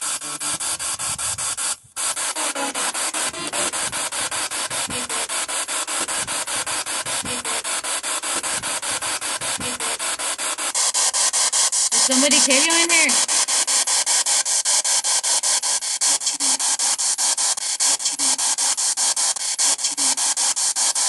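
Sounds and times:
radio sound fragments: 0.0s - 10.2s, 12.0s - 13.4s
pulsing radio static: 0.0s - 13.8s.

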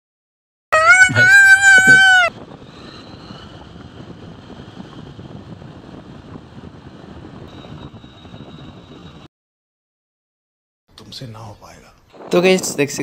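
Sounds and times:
vehicle road and engine noise: 2.3s - 9.3s.

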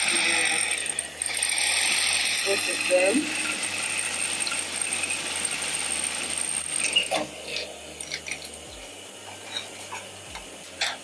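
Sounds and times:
sewing machine running: 0.0s - 7.3s.

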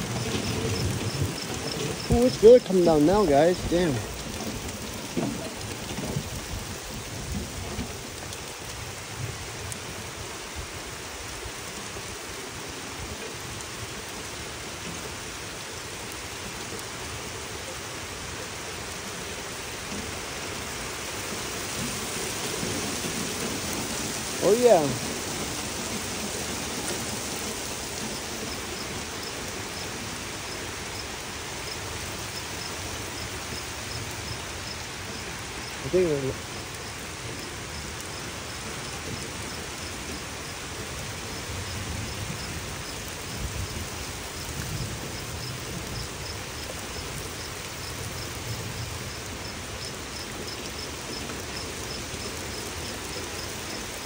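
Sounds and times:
low thunder rumble: 0.0s - 8.2s
heavy rain pouring: 0.0s - 54.0s.

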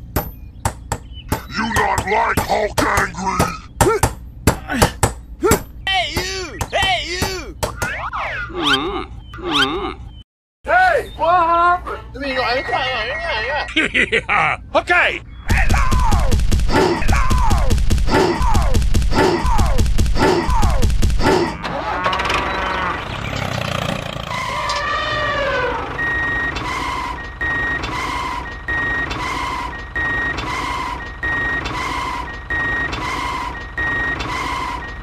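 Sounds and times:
falling electronic tone: 21.6s - 34.8s
electronic reversing beeper: 24.2s - 35.0s.

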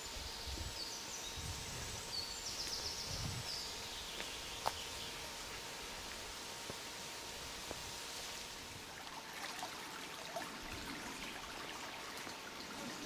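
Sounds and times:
songbird singing: 0.0s - 5.7s
footsteps on dirt path: 4.1s - 6.8s, 7.6s - 7.9s.

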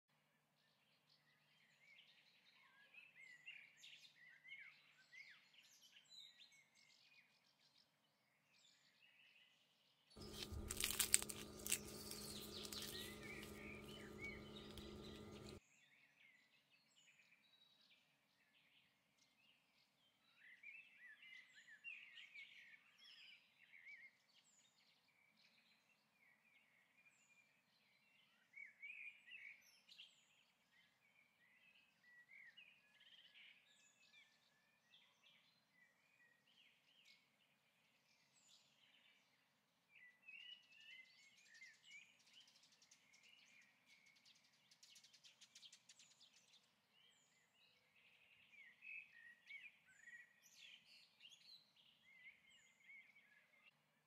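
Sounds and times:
crisp pastry crunching: 10.2s - 15.6s
faint bird chirping: 10.2s - 15.6s.

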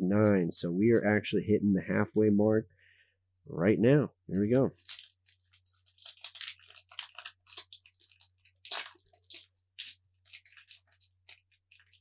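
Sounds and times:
foil wrapper tearing and crinkling: 4.7s - 12.0s.

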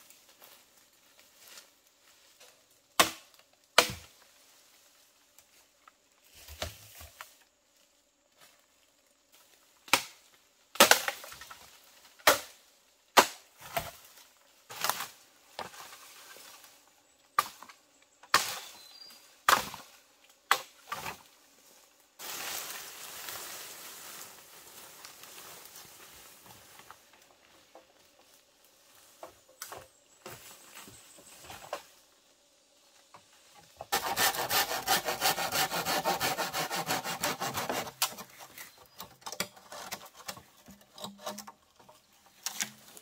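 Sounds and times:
bamboo poles dragged over leaves: 0.0s - 2.8s, 3.9s - 9.8s, 11.0s - 12.7s, 13.5s - 17.7s, 18.3s - 43.0s
blade chopping bamboo: 3.0s - 4.1s, 10.8s - 11.3s, 33.9s - 41.6s.

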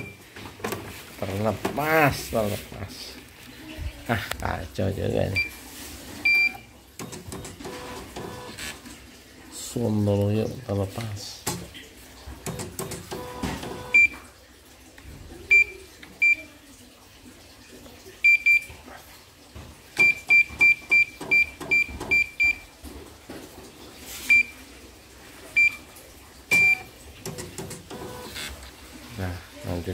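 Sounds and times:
short high key beeps: 0.0s - 0.2s.

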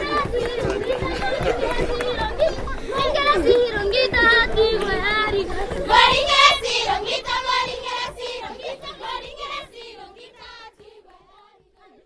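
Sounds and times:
children singing: 0.0s - 12.0s.

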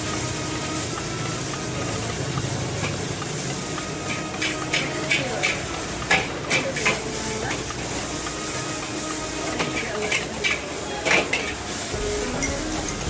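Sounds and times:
rice sizzling: 0.0s - 13.0s
metal spatula scraping a wok: 2.8s - 13.0s.

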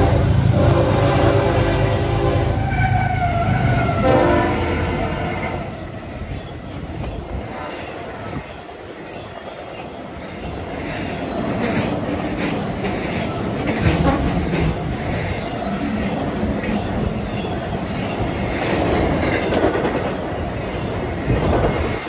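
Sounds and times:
train horn: 0.0s - 5.8s
train wheels clicking over rail joints: 6.1s - 22.0s.

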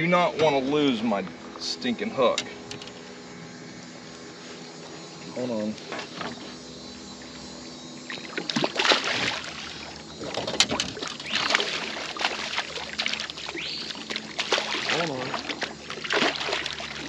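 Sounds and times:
fish thrashing and splashing: 8.1s - 17.0s.

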